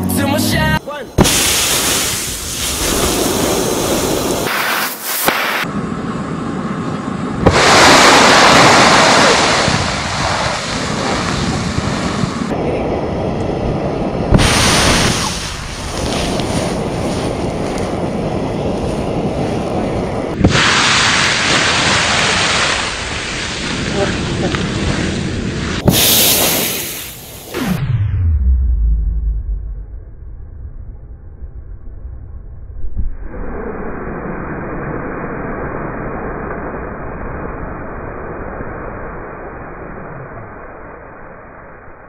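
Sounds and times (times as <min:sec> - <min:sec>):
roaring oil fire: 0:01.1 - 0:27.6.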